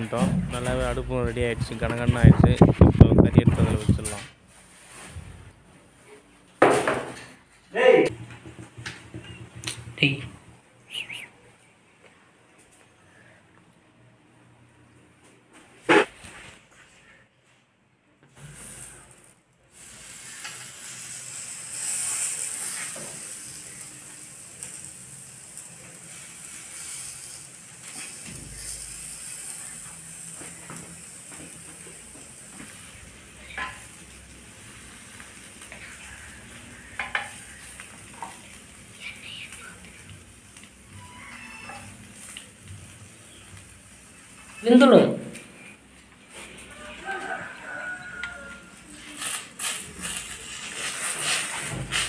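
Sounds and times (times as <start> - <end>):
chicken sizzling over charcoal: 18.4 - 45.7, 46.3 - 52.0.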